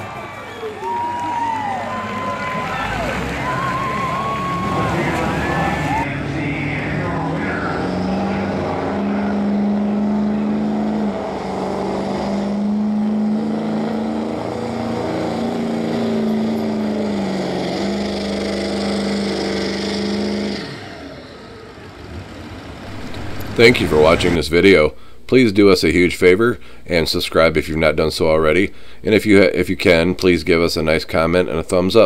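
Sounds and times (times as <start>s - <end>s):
diesel truck engine at full throttle: 0.0s - 24.4s.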